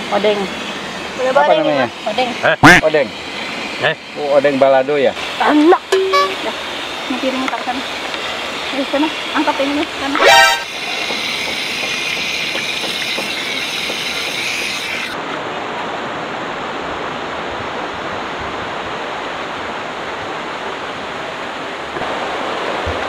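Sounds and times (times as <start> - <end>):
river water rushing: 0.0 - 23.0
high shrill tone: 5.8 - 6.5, 10.1 - 11.4.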